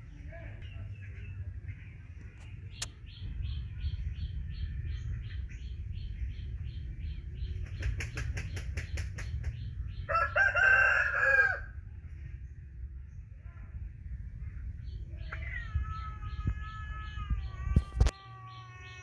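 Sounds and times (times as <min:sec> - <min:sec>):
steady low rumble: 0:00.0 - 0:18.2
rooster crowing: 0:10.1 - 0:11.7
high chick chirps: 0:14.9 - 0:19.0.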